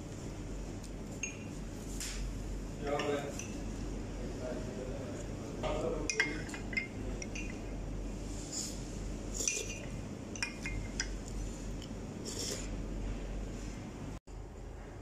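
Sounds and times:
restaurant room hum: 0.0s - 15.0s
spoons clinking on ceramic bowls: 5.6s - 7.8s, 9.3s - 11.3s.

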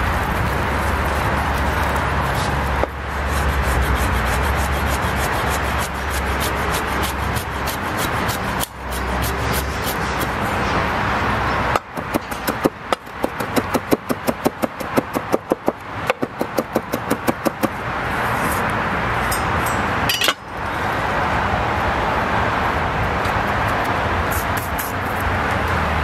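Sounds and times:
knife chopping on wooden board: 11.7s - 17.8s.

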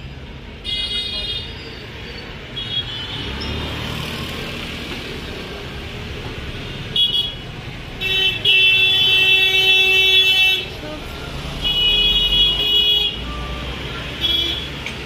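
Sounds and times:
street traffic: 0.0s - 15.0s
vehicle horns honking: 6.9s - 7.4s, 8.0s - 10.8s, 11.5s - 14.8s.

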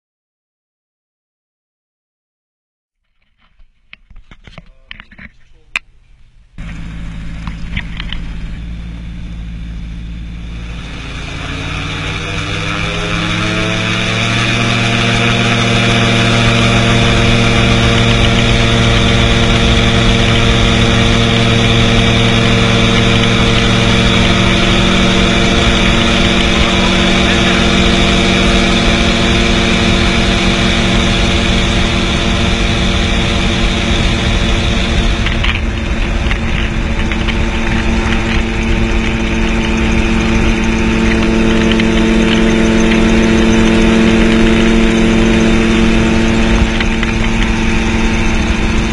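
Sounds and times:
high whine: 4.6s - 48.9s
aircraft engine and propeller drone: 6.5s - 48.9s
wind rush over microphone: 10.7s - 48.9s.

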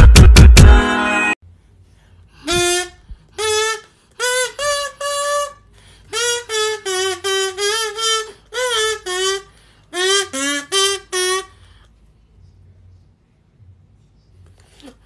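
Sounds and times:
kazoo playing tune: 2.4s - 11.9s.

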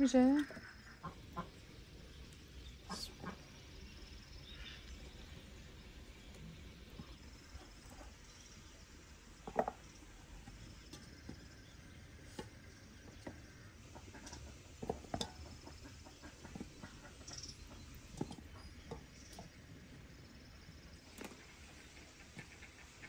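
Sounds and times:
faint bird chirps: 0.3s - 9.1s, 15.4s - 23.0s.

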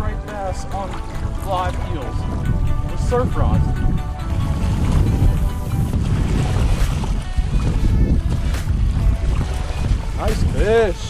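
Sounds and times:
background music: 0.0s - 11.0s
wind buffeting microphone: 0.0s - 11.0s
small waves washing on sand: 4.5s - 11.0s.

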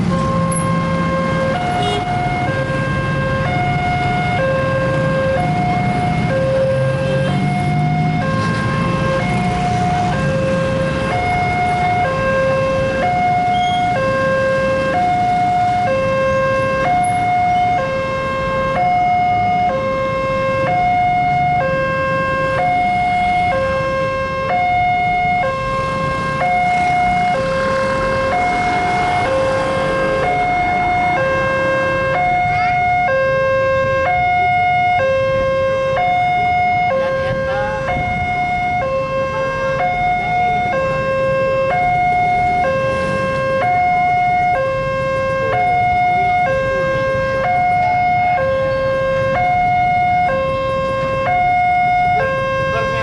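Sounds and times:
level-crossing two-tone alarm: 0.0s - 53.0s
road traffic rumble: 0.0s - 53.0s.

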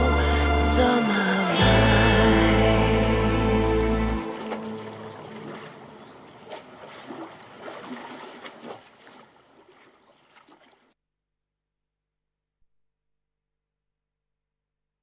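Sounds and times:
small waves lapping against stone: 4.3s - 11.0s.

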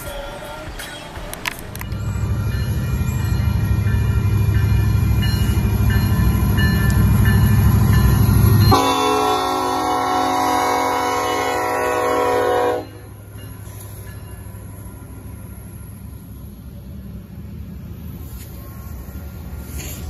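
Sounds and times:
train low rumble: 0.0s - 20.0s
locomotive air horn chord: 8.7s - 13.1s.

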